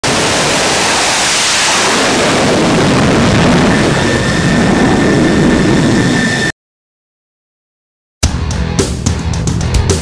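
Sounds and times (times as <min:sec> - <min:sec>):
jet engines roaring: 0:00.0 - 0:06.5
high jet whine: 0:00.0 - 0:06.6.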